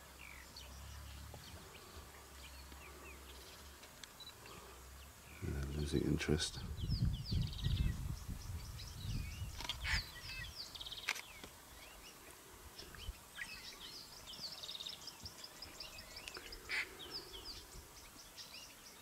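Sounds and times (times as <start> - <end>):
birds chirping and whistling: 6.8 - 12.2.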